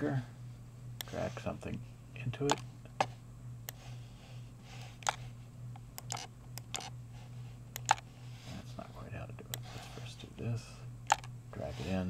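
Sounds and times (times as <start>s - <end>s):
steady low hum: 0.0s - 12.0s
computer mouse clicking: 5.0s - 5.2s, 5.8s - 6.9s, 7.7s - 8.1s, 11.1s - 11.3s.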